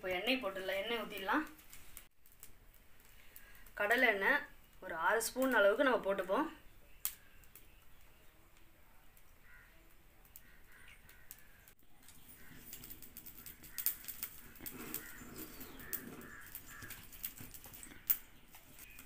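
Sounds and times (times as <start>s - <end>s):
wood fire crackling: 0.0s - 19.0s
birds calling: 6.6s - 8.4s, 9.3s - 19.0s.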